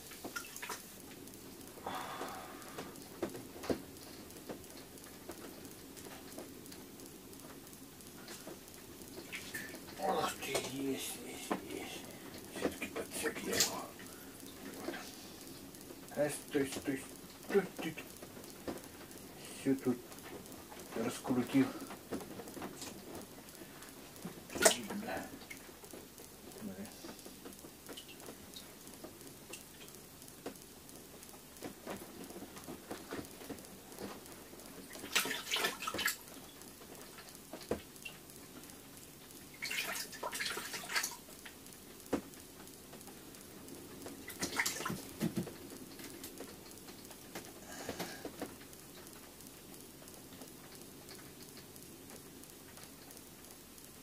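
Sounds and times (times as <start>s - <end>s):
water splashing and rustling: 0.0s - 1.8s, 2.4s - 30.5s, 31.4s - 42.3s, 43.8s - 47.5s
sharp ticks: 2.6s - 54.0s.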